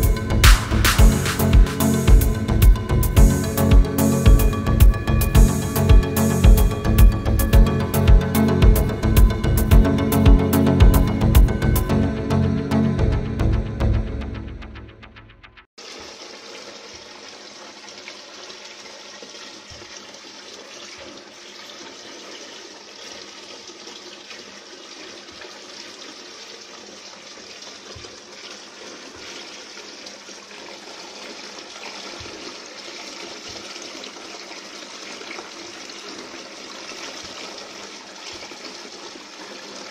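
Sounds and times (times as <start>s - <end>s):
fountain water splashing: 15.8s - 39.9s.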